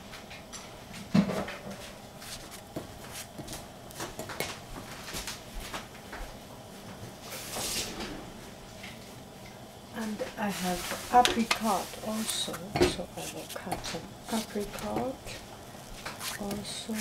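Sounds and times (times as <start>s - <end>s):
knife cutting strawberries: 16.0s - 17.0s.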